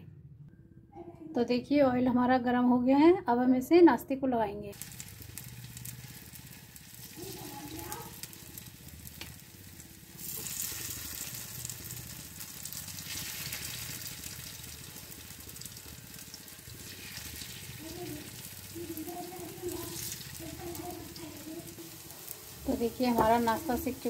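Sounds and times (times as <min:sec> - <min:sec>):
hot oil sizzling in a pan: 0:04.7 - 0:24.0.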